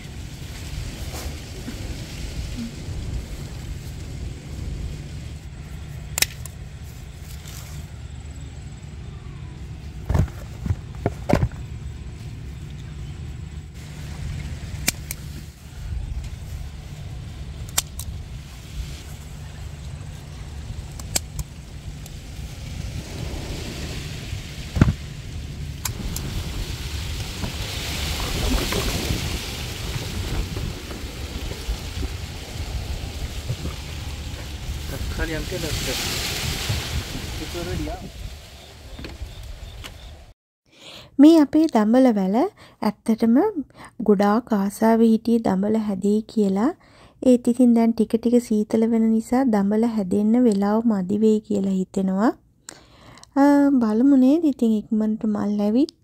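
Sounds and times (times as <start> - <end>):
wind buffeting microphone: 0.0 - 7.4, 8.0 - 40.3
rustling hiss: 0.0 - 40.3
low outdoor rumble: 0.0 - 40.4.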